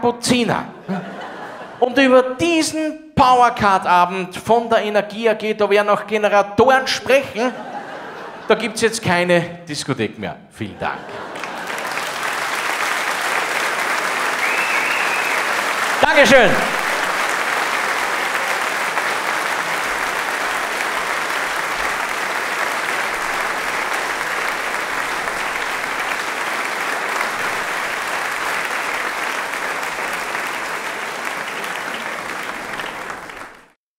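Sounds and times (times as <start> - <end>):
audience applauding: 11.0 - 33.8.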